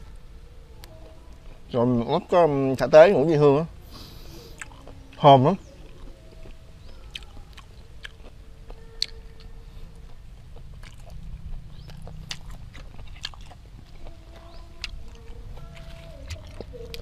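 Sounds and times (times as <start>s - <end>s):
biting and chewing mouth sounds: 4.0s - 17.0s.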